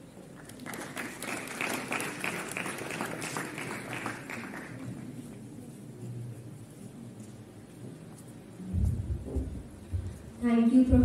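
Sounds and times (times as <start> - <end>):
audience applauding: 0.3 - 5.1.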